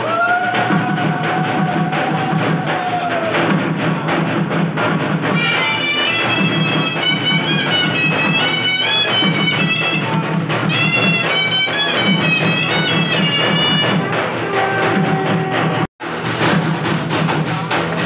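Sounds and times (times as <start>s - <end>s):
repeating drum pattern: 0.0s - 18.0s
shrill reed wind instrument melody: 5.3s - 15.9s.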